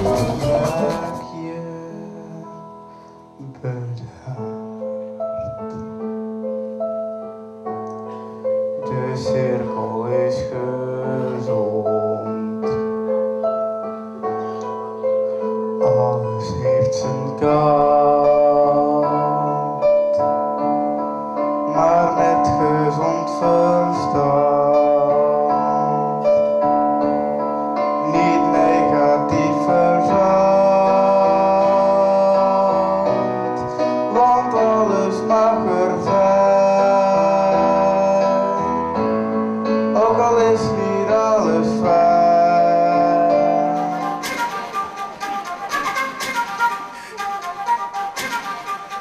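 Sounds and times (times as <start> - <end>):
man singing: 0.0 - 4.8, 8.8 - 13.2, 15.8 - 20.7, 21.5 - 26.9, 27.8 - 44.6
held keyboard chords: 0.0 - 49.0.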